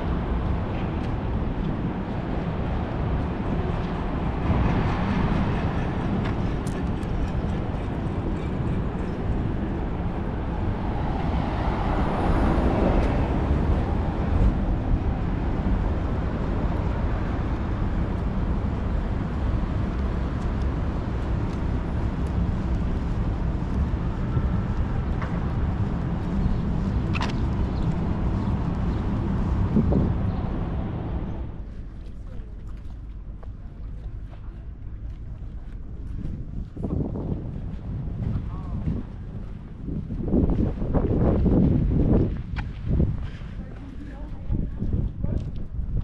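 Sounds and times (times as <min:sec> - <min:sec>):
low rumble of traffic: 0:00.0 - 0:46.0
vehicle passing by: 0:09.9 - 0:17.9.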